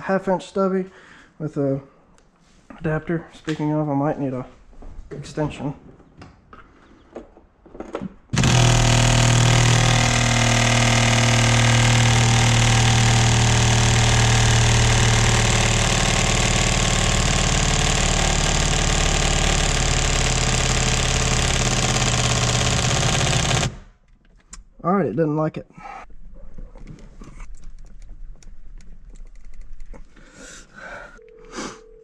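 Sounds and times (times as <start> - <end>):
impact wrench hammering on bolt: 8.3 - 23.9.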